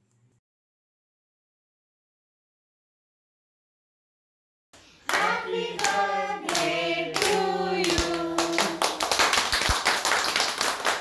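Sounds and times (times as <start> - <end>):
rhythmic hand clapping: 4.8 - 11.0
group singing: 5.0 - 9.3
applause: 5.1 - 11.0.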